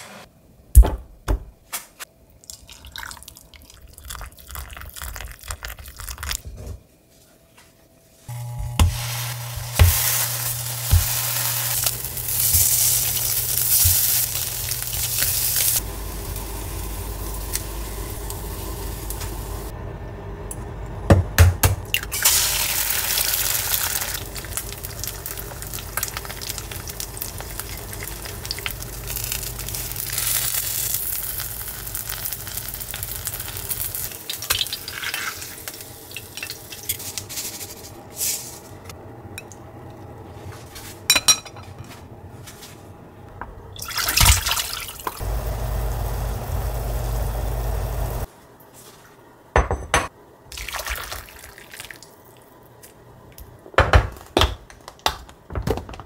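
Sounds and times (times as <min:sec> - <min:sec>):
food sizzling in frying pan: 0:08.3 - 0:19.7, 0:22.1 - 0:37.5, 0:44.7 - 0:48.3.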